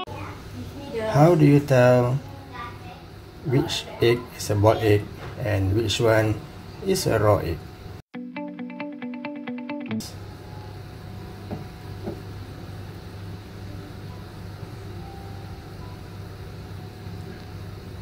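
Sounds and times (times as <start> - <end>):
guitar music: 8.1 - 10.2
low room hum: 10.1 - 18.0.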